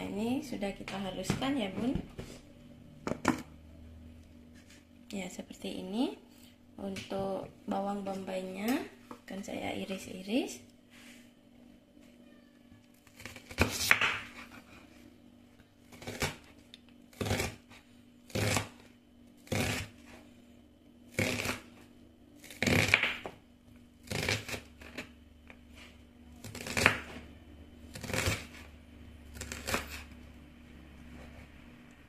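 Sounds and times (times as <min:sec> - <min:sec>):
knife slicing onion on wooden board: 0:13.1 - 0:14.8, 0:15.9 - 0:16.5, 0:17.1 - 0:20.2, 0:21.1 - 0:21.8, 0:22.4 - 0:23.3, 0:24.0 - 0:25.1, 0:26.4 - 0:27.2, 0:27.9 - 0:28.7, 0:29.3 - 0:30.2.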